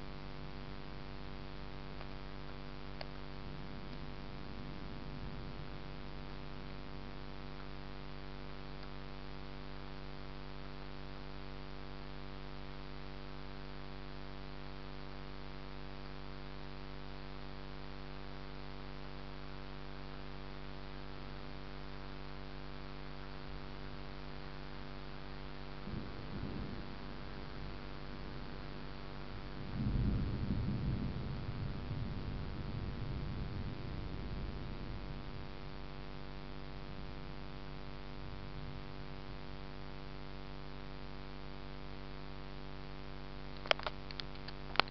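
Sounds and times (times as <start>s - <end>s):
faint hiss: 0.0s - 44.9s
steady tonal hum: 0.0s - 44.9s.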